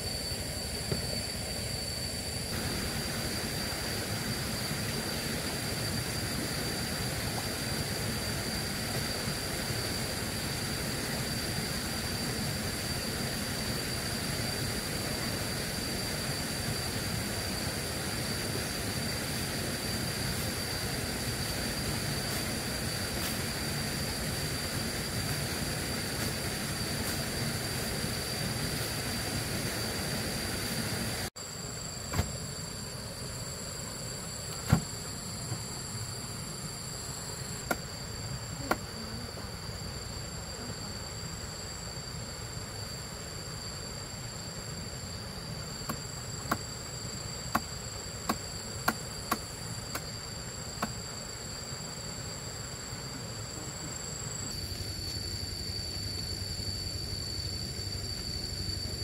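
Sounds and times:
insects droning: 0.0s - 59.0s.

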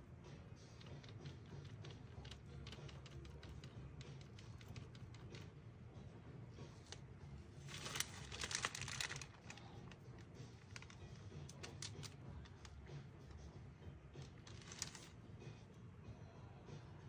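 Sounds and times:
paper rustling: 7.6s - 12.8s, 14.2s - 15.2s.

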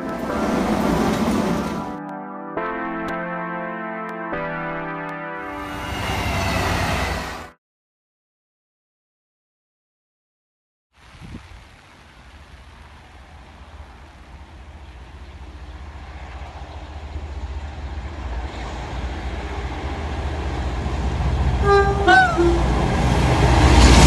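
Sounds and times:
diesel locomotive rumble: 0.0s - 2.0s, 5.5s - 7.5s, 12.8s - 24.0s
train horn two notes: 21.6s - 22.8s.

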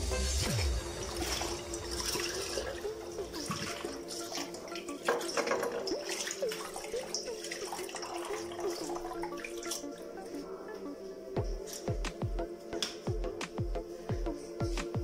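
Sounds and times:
water splashing: 0.6s - 10.5s
tap water running into basin: 0.8s - 10.0s.

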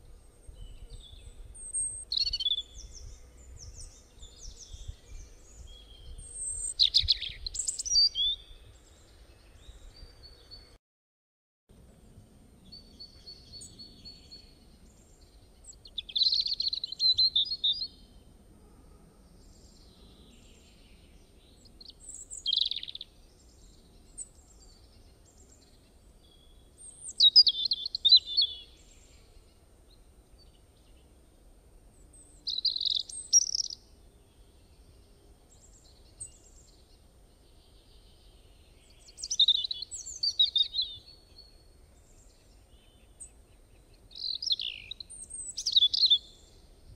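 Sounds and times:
faint low background hiss: 11.7s - 46.9s
songbird singing high notes: 44.2s - 46.5s.

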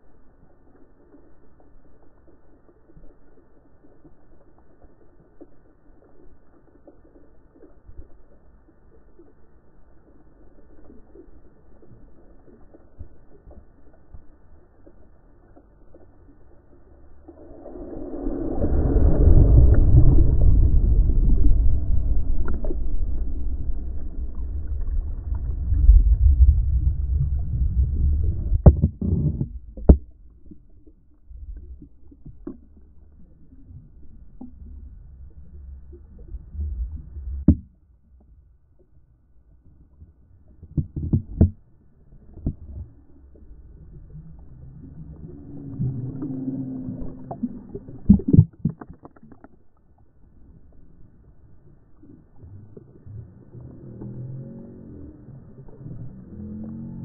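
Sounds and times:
faint ticks: 0.0s - 16.8s
muffled underwater surf rumble: 10.6s - 57.0s.

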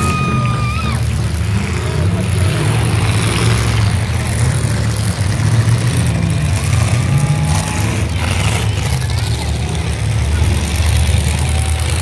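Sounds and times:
car engines running: 0.0s - 12.0s.

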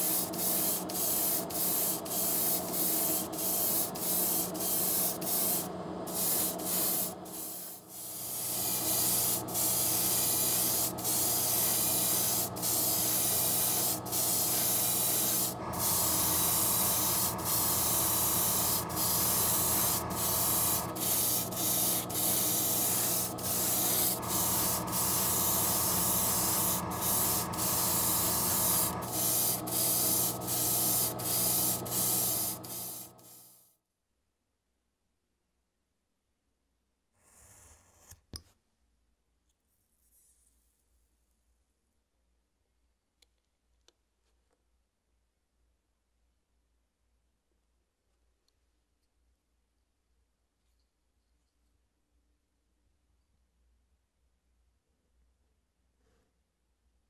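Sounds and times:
airbrush spraying hiss: 0.0s - 33.5s.

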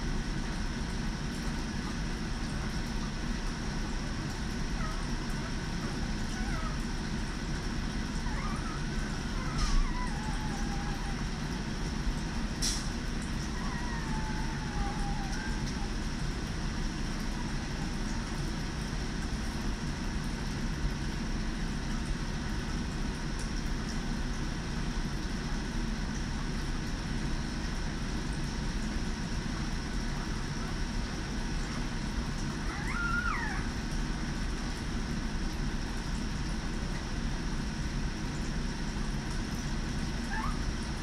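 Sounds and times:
puppy whimpering: 4.6s - 11.9s, 13.2s - 16.2s, 32.4s - 34.0s, 40.2s - 41.0s.

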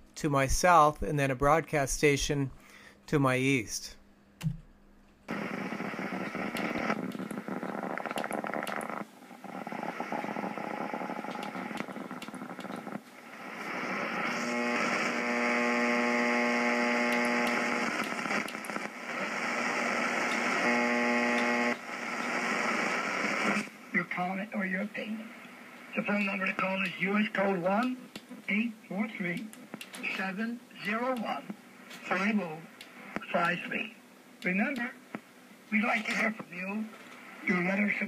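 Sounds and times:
buzzing hum: 4.4s - 23.9s
shortwave radio hiss: 5.3s - 38.0s.

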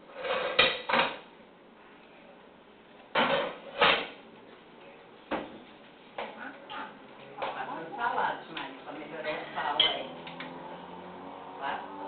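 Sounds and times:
pots and utensils clattering: 0.1s - 1.2s, 3.1s - 4.2s.

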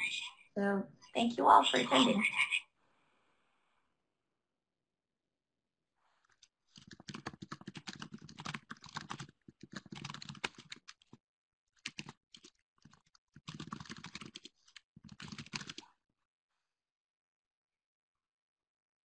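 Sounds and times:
typing on computer keyboard: 6.7s - 11.2s, 11.8s - 15.8s.

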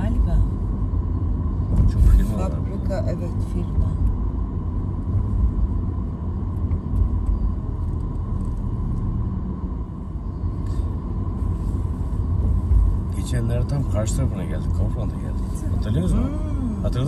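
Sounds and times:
car interior road rumble: 0.0s - 17.0s.

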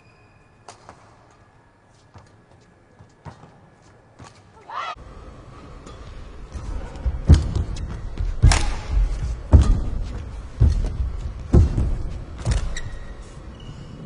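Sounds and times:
badminton racket hitting shuttlecock: 8.4s - 9.0s.

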